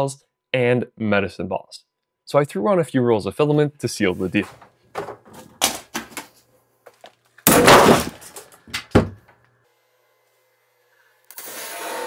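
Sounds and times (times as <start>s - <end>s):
loud crash of weights dropping: 7.5s - 8.4s.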